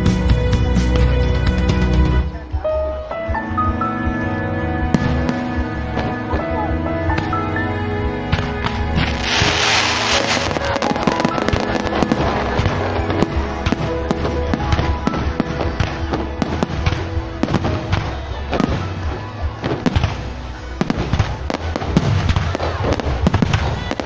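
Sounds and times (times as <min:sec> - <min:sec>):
music: 0:00.0 - 0:24.0
crackling firework pops: 0:08.3 - 0:19.0, 0:19.6 - 0:24.0
firework burst: 0:08.6 - 0:24.0.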